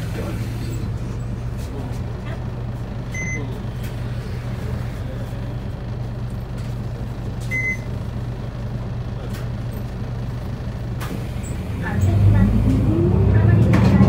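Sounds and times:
diesel bus engine idling: 0.0 - 14.0.

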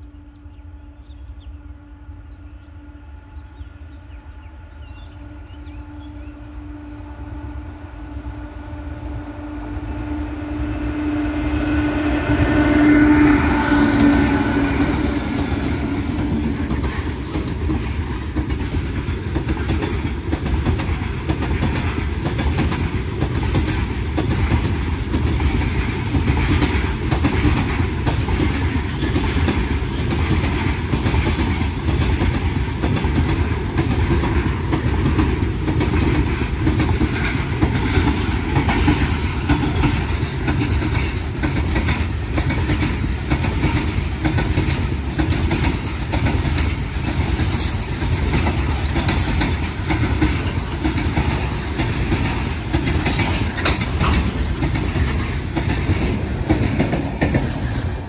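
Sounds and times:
train horn blast: 0.0 - 16.6
train wagons rumbling: 0.3 - 58.0
wheel clatter: 15.2 - 58.0.

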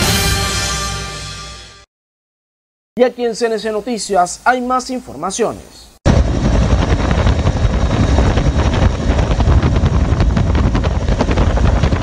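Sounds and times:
helicopter rotor and turbine noise: 6.1 - 12.0.

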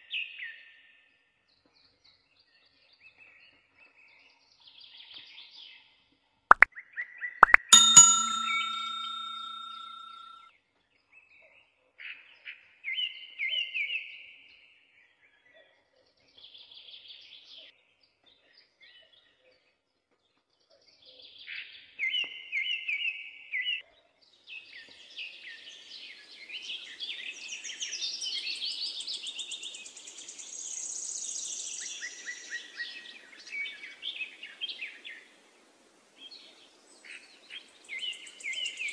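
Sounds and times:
metallic ding: 7.4 - 10.4.

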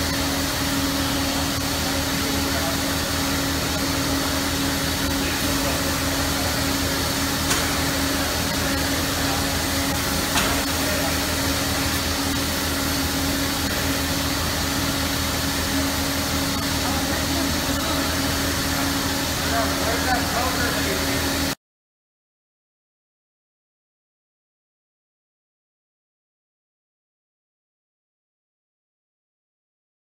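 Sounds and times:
constant hum: 0.0 - 21.6.

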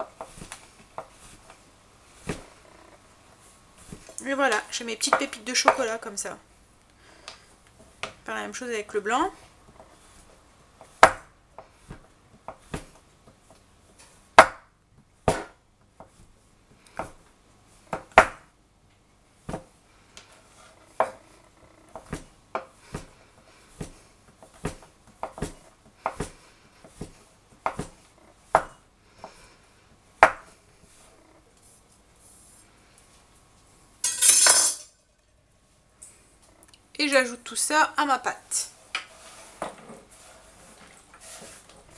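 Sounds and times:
knife chopping on wooden board: 10.8 - 13.0, 14.4 - 14.7, 15.3 - 15.6, 17.9 - 18.4, 23.8 - 29.4, 30.2 - 30.5
pieces scraped on board: 38.9 - 41.9.

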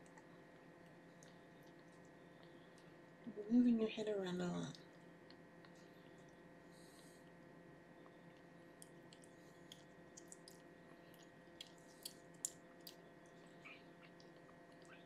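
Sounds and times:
faint steady hum: 0.0 - 15.0
kitten suckling wet clicks: 8.8 - 13.1.

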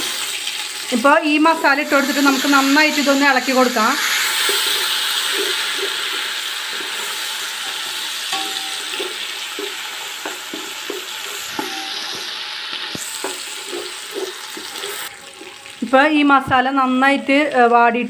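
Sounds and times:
paste sizzling in hot oil: 0.0 - 16.2
spatula scraping and tapping pot: 4.3 - 15.6.

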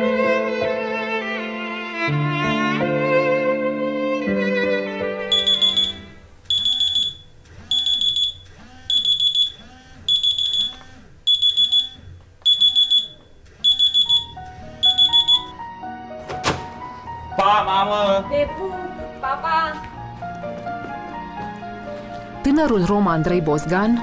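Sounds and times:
phone alarm beeping: 5.2 - 15.6.

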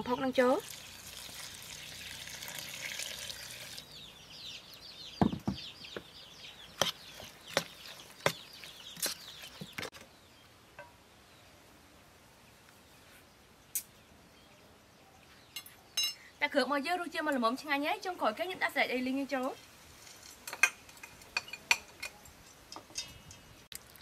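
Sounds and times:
liquid pouring into bowl: 0.6 - 3.8.

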